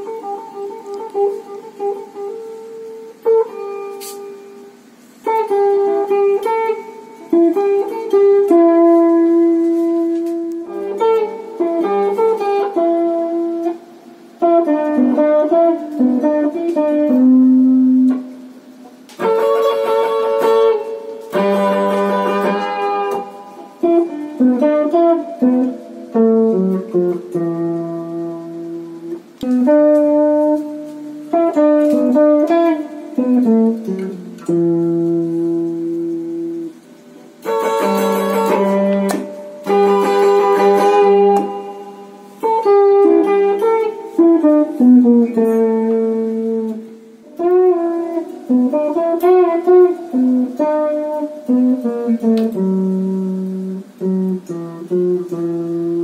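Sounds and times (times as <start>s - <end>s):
electric guitar playing: 0.0s - 56.0s
strummed guitar chords: 0.0s - 56.0s.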